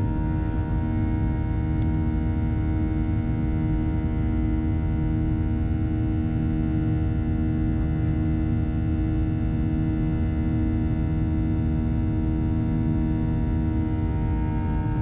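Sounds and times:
jet engines droning in cabin: 0.0 - 15.0.

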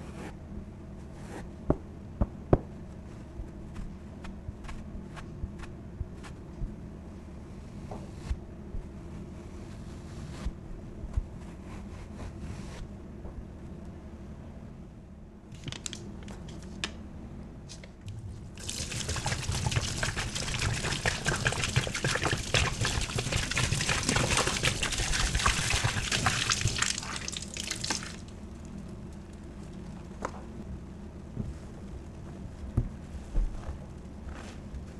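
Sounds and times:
liquid splashing and gurgling: 18.6 - 28.2.

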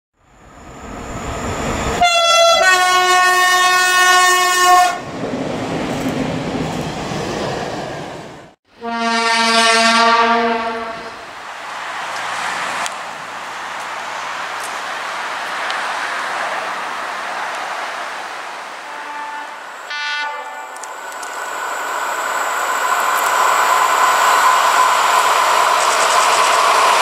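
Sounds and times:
trains running: 0.3 - 8.6, 10.8 - 27.0
train horn: 2.0 - 5.0, 8.8 - 11.2, 18.8 - 20.9.

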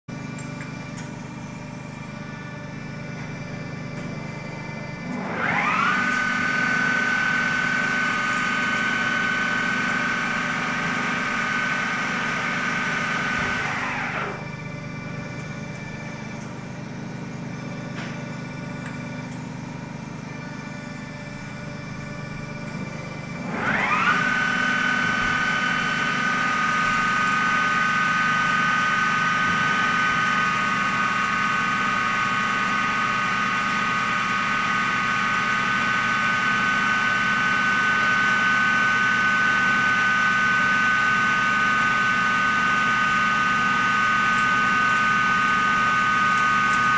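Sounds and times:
low machine hum: 0.1 - 37.2
lathe spindle whine: 0.2 - 46.9.

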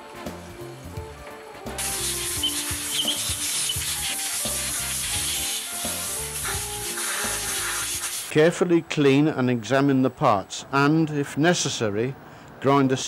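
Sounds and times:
compressed air blowgun hissing: 1.8 - 8.3.

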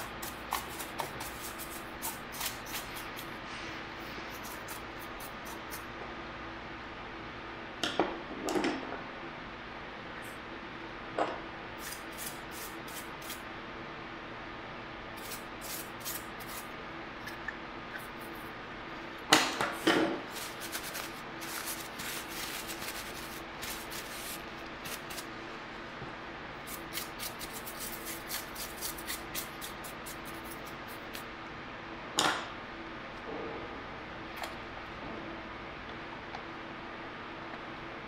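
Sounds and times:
tissue rubbing on plastic: 20.3 - 25.3.

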